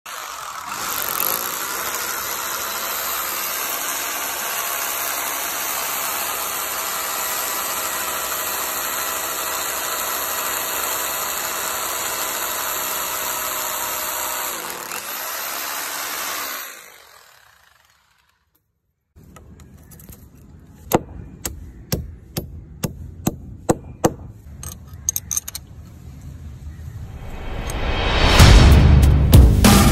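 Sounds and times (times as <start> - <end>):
electric drill boring into concrete: 0.1 - 18.5.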